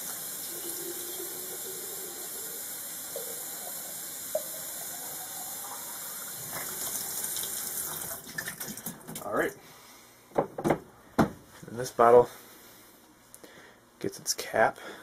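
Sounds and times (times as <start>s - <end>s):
water running from faucet into sink: 0.0s - 9.1s.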